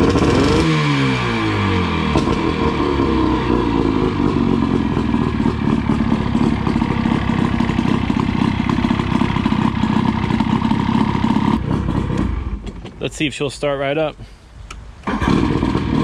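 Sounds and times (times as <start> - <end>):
outboard motor idling: 2.1 - 13.1.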